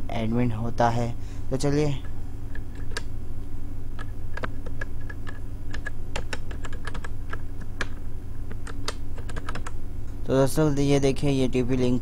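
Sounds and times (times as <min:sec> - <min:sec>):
steady low hum: 0:00.0 - 0:12.0
keyboard keys clicking: 0:04.0 - 0:09.8.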